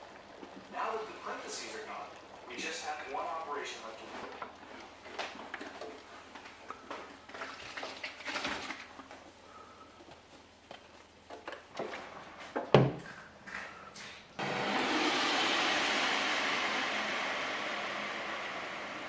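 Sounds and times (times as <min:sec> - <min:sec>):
kitchen clatter: 0:05.1 - 0:09.1.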